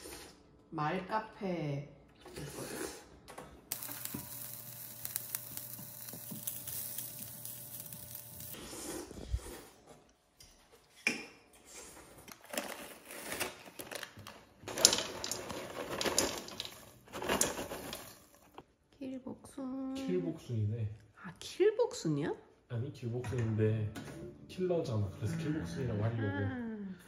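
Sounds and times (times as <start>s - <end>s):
popcorn poured into metal bowl: 3.7s - 8.6s, 14.6s - 18.6s
kitchen clatter: 12.4s - 18.6s.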